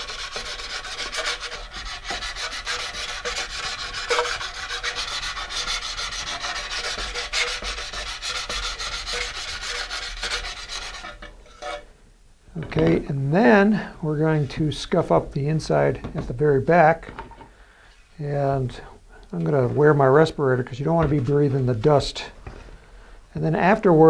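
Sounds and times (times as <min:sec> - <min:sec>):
sandpaper rasping inside a tube: 0:00.0 - 0:11.8.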